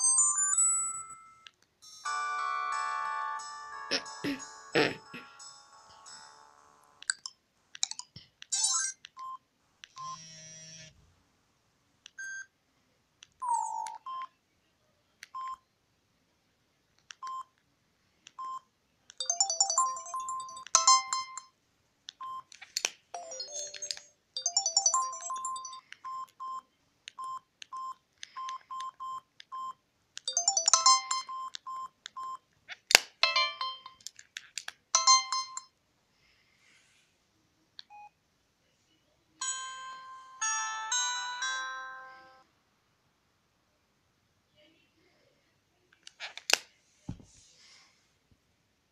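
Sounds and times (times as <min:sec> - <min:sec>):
phone chiming melodies: 0:00.0 - 0:07.0, 0:19.2 - 0:21.5, 0:23.2 - 0:25.9, 0:30.3 - 0:31.4, 0:39.4 - 0:42.4.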